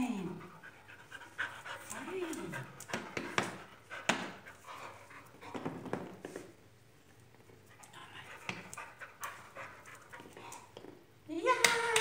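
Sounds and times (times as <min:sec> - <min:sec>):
dog panting: 0:00.2 - 0:05.8, 0:07.7 - 0:10.7.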